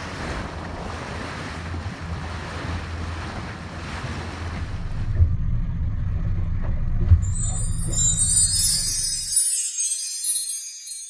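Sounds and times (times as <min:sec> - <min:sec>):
wind buffeting microphone: 0:00.0 - 0:09.3
water rushing past boat: 0:00.0 - 0:09.6
low engine drone: 0:00.3 - 0:09.3.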